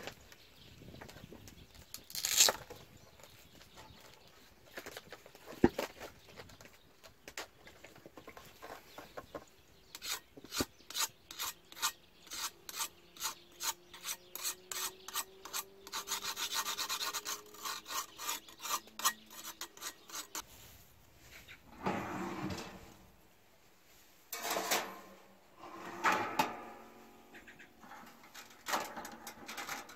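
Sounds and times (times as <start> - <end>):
rasping scrapes on knife blade: 10.0 - 20.4
metal oven door opening: 25.7 - 26.9.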